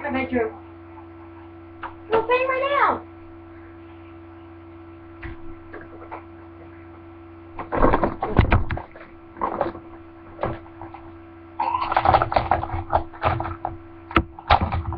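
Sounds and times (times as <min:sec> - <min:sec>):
steady electrical hum: 0:00.0 - 0:14.9
thumps and rustling: 0:07.6 - 0:11.2, 0:12.0 - 0:14.9.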